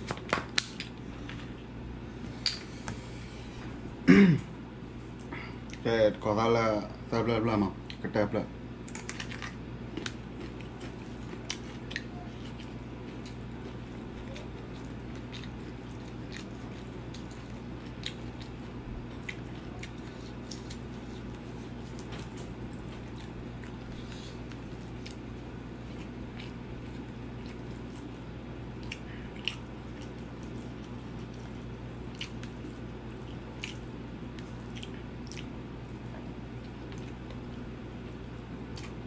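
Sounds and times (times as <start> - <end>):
steady low hum: 0.0 - 39.0
wet chewing and squishing: 8.9 - 39.0.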